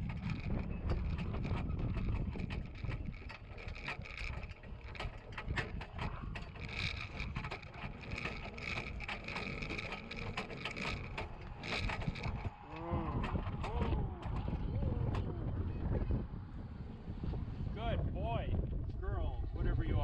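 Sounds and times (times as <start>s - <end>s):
metal cart rattling on rough ground: 0.0s - 15.3s.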